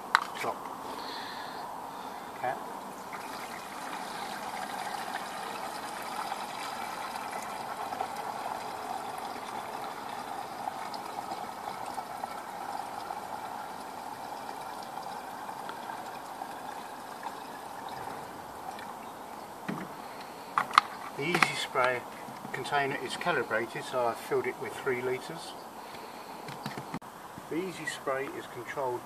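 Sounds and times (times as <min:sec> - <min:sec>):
water pouring into plastic tank: 0:03.1 - 0:19.0.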